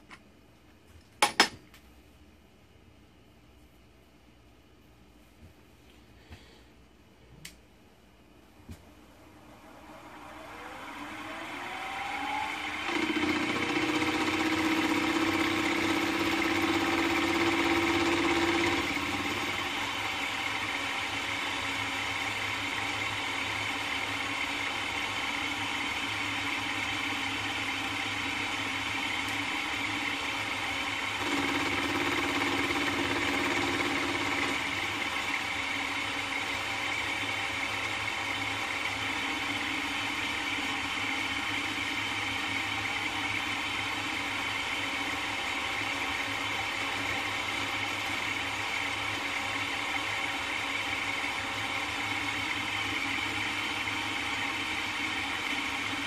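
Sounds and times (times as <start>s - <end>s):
louder hum: 9.0s - 19.4s
milling machine spindle whine: 9.0s - 56.0s.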